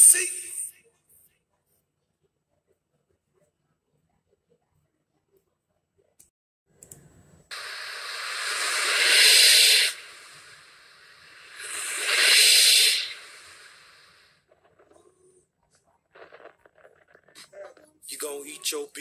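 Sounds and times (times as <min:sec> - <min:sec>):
hissing noise: 0:07.5 - 0:15.0.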